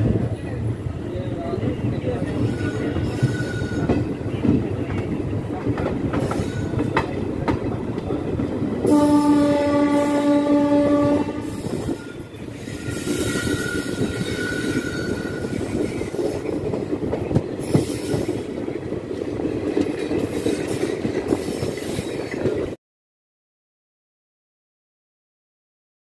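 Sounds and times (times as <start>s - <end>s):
train rumbling: 0.0s - 22.8s
wheels clacking over rail joints: 2.1s - 8.9s
faint wheel squeal: 2.3s - 3.9s
train horn: 8.8s - 11.8s.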